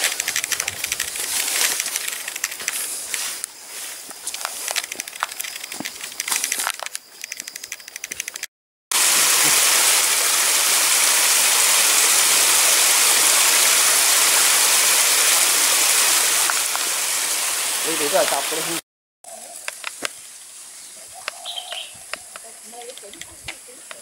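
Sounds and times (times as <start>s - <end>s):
footsteps on a trail: 0.0s - 8.5s
stream water rushing: 8.9s - 18.8s.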